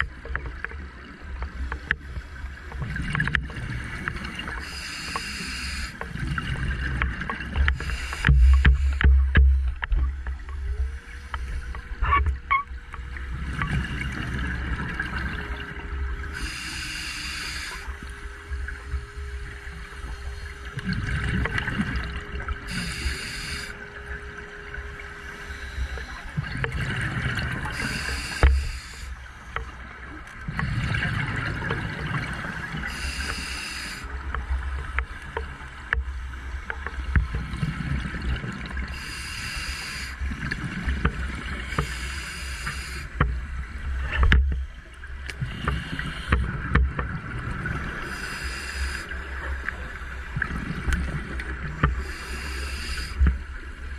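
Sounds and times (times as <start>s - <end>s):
diver breathing through regulator: 4.6s - 6.0s, 7.6s - 9.3s, 16.3s - 18.2s, 22.7s - 23.8s, 27.6s - 29.3s, 32.8s - 34.1s, 38.9s - 40.2s, 41.6s - 43.2s, 48.0s - 49.4s, 51.8s - 53.4s
steady hum-like tone: 7.6s - 53.9s
exhaled bubbles rumbling: 20.7s - 22.8s, 25.8s - 28.0s, 29.8s - 32.9s.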